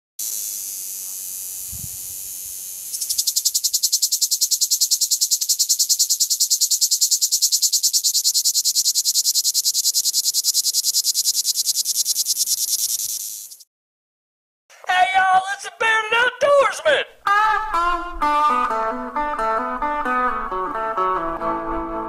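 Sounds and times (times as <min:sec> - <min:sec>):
cicadas buzzing: 0:00.2 - 0:13.7.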